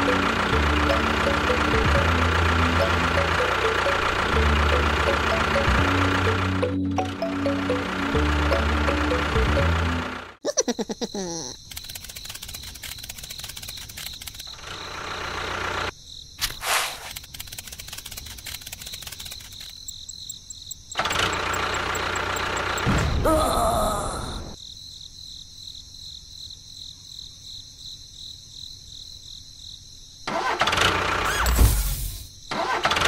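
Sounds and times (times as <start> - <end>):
engine starting: 11.7 - 19.8, 21.0 - 23.1, 30.2 - 33.0.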